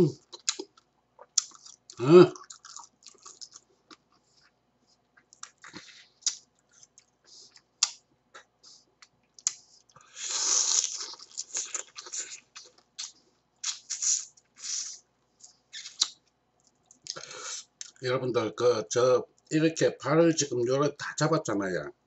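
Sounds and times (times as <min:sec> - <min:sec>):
crab shell crunching while eating: 0:00.2 - 0:04.2, 0:09.4 - 0:15.0
sucking slurp: 0:13.0 - 0:15.0.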